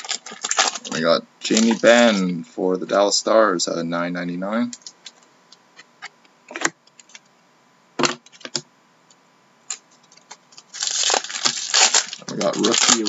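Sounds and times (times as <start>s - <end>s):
foil wrappers crinkling: 0.0s - 3.1s, 9.7s - 13.0s.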